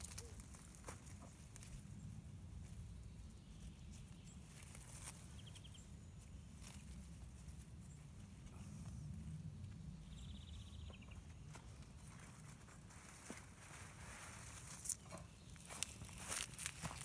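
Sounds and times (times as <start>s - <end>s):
leaves rustling as plants handled: 0.0s - 2.0s, 3.6s - 9.1s, 11.5s - 17.0s.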